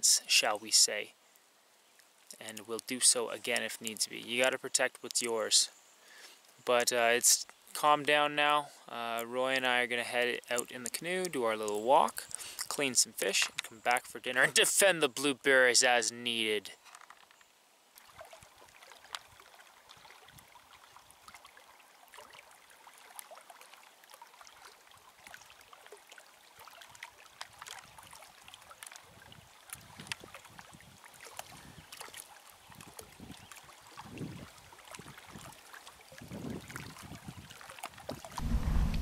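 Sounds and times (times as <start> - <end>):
paddle water drips and splashes: 0.2 - 15.5, 16.3 - 38.4
soft low water swells: 17.9 - 39.0.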